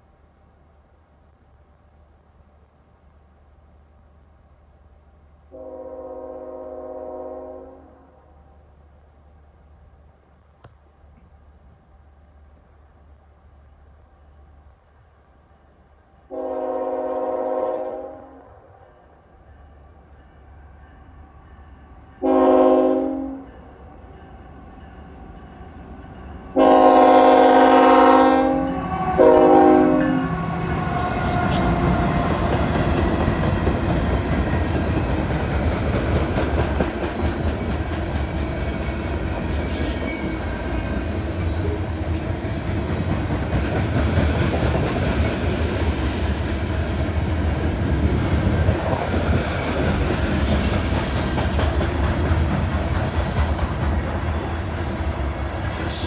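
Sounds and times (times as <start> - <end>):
locomotive horn blasts: 5.5 - 8.2, 16.3 - 18.6, 22.2 - 23.6, 26.5 - 31.6
rail joint clicks: 10.4 - 12.0, 30.8 - 56.0
train wheels rumbling on rails: 18.7 - 56.0.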